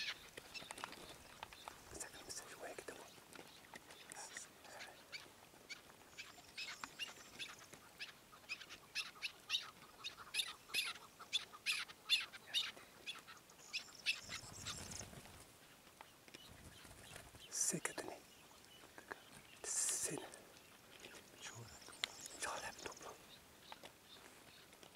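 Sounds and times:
partridges calling: 0.0s - 24.8s
wings fluttering: 14.1s - 17.5s.

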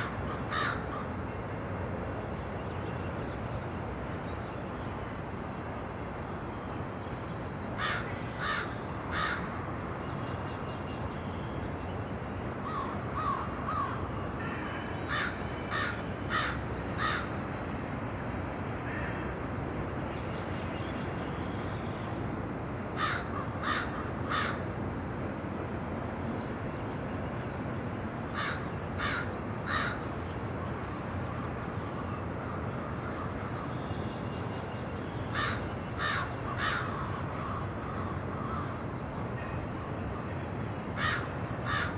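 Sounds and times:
crow cawing: 0.0s - 1.1s, 7.8s - 9.5s, 12.6s - 14.0s, 15.1s - 17.3s, 18.9s - 19.2s, 23.0s - 24.6s, 28.4s - 30.0s, 35.3s - 38.8s, 41.0s - 41.9s.

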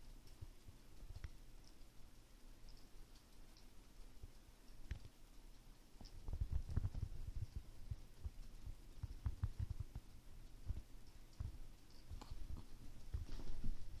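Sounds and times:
soft thumps and clicks of cats: 0.1s - 14.0s.

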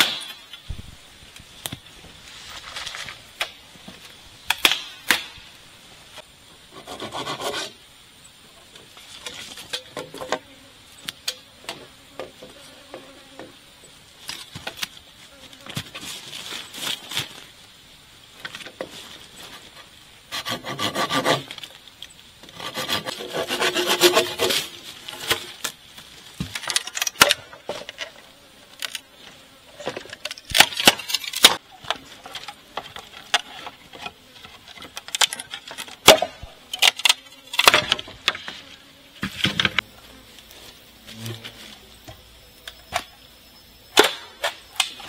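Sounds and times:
bamboo poles scraping: 1.4s - 5.3s, 6.1s - 7.9s, 8.8s - 10.4s, 14.2s - 17.5s, 18.4s - 41.9s
bamboo poles knocking together: 29.8s - 38.6s.

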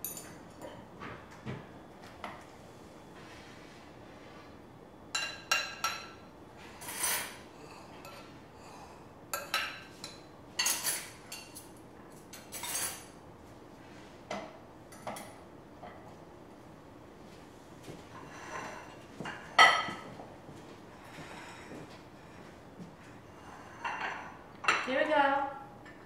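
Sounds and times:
cutlery clinking on plates: 5.2s - 6.2s, 6.8s - 7.4s, 8.0s - 8.3s, 9.4s - 13.2s, 18.5s - 20.2s.

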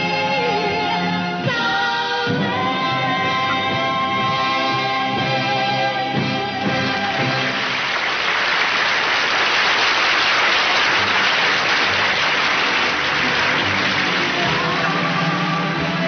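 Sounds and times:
band music: 0.0s - 9.1s, 10.4s - 16.0s
audience applauding: 6.6s - 16.0s.

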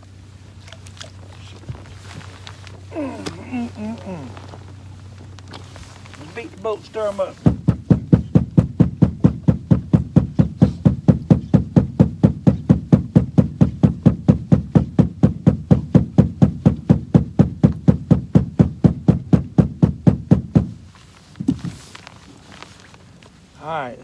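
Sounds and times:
hand beating boat hull: 6.3s - 21.6s.

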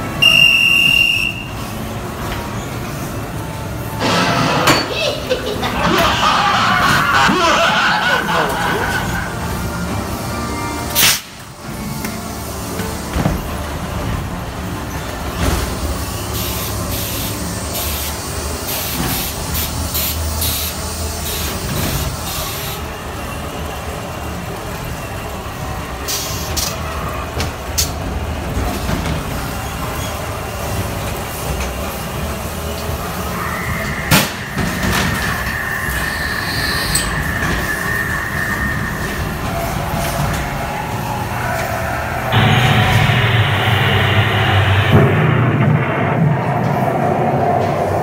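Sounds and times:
ride car rumbling on track: 0.0s - 48.0s
sharp bang: 42.4s - 48.0s.

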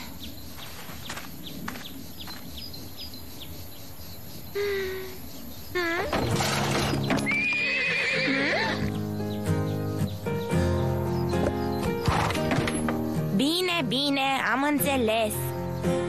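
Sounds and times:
horse whinnying: 6.1s - 9.0s
light music: 6.6s - 16.0s.

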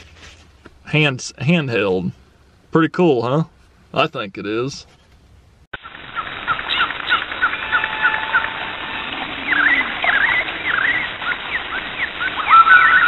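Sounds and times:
birds chirping and twittering: 4.8s - 13.0s.

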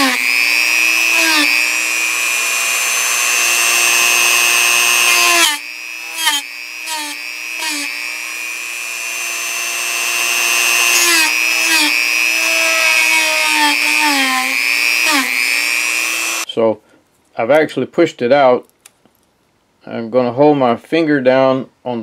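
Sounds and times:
rotary tool grinding metal: 0.0s - 16.5s
rotary tool motor whining: 0.0s - 16.5s.

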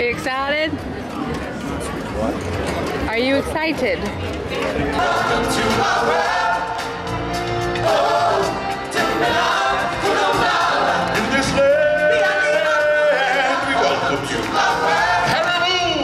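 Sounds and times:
choir of voices singing: 4.7s - 16.0s
man singing into microphone: 11.2s - 16.0s.

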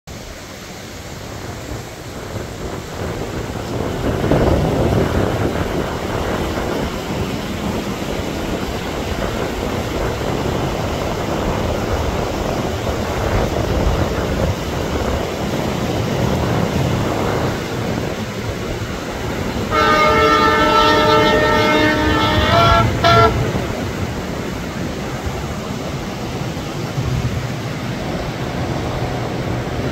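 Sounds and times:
train crossing steel bridge: 0.1s - 29.9s
locomotive horn: 19.6s - 24.0s.

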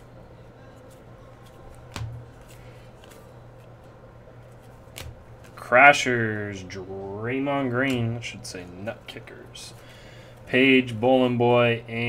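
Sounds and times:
low steady hum: 0.0s - 12.0s
trading cards clicking: 0.9s - 3.7s, 4.4s - 5.6s
card snapping: 1.4s - 3.2s, 4.9s - 5.6s.

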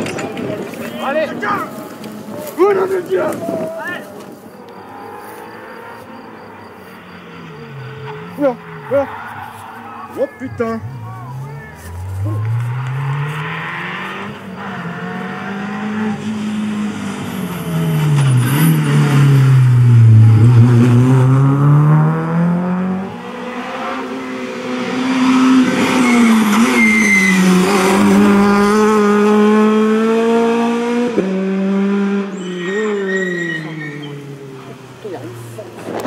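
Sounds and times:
cars passing loudly: 0.0s - 36.0s
rally car engines at high revs: 4.4s - 36.0s.

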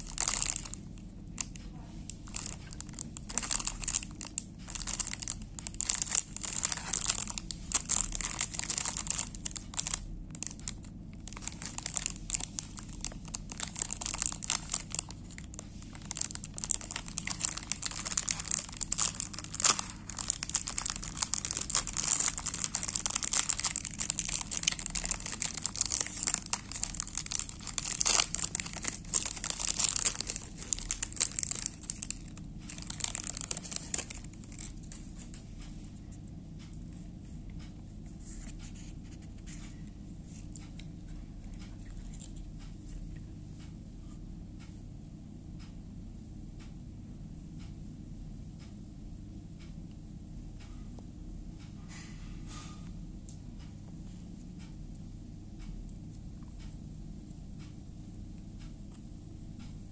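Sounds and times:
plastic wrapper crinkling: 0.0s - 35.3s.

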